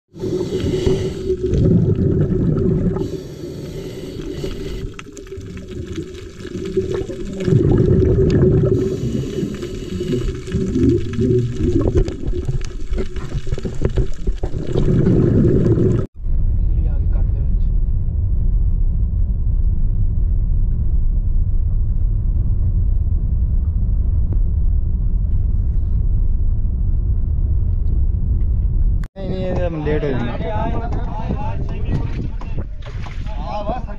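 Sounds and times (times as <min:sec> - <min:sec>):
underwater rumbling wash: 0:00.1 - 0:33.9.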